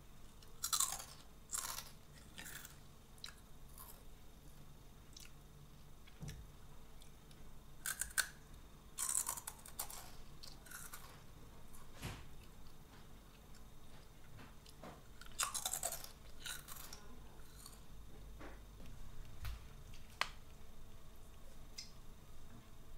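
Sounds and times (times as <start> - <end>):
crunching snack sticks: 0.4 - 4.0, 7.8 - 8.4, 9.0 - 11.3, 14.6 - 17.9.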